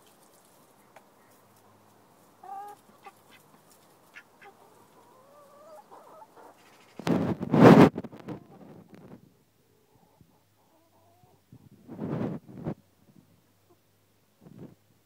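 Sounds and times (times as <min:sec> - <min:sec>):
hen calling: 0:02.4 - 0:07.0
soft clucks: 0:02.4 - 0:07.1.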